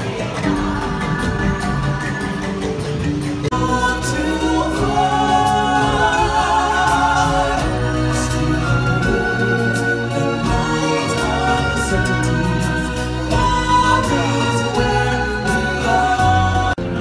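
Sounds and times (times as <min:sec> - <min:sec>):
choir singing with instrumental backing: 0:00.0 - 0:17.0.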